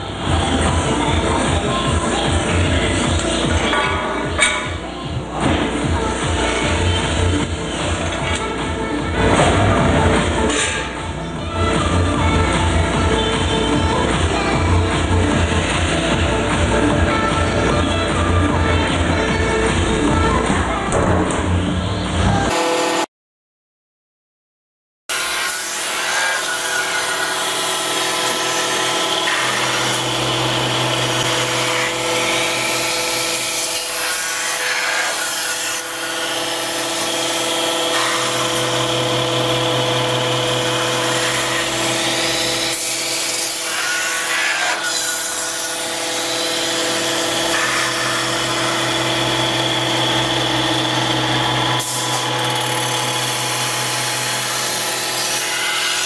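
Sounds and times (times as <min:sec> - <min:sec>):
tool scraping metal: 0:10.5 - 0:11.0
metal lathe whine: 0:27.4 - 0:33.5, 0:36.0 - 0:43.1, 0:45.9 - 0:55.7.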